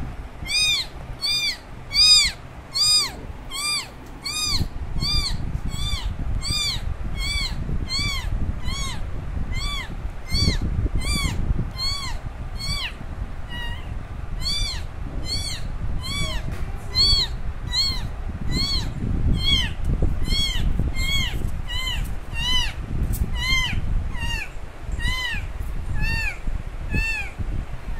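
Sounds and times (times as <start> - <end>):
kitten meowing loudly: 0.4 - 27.4.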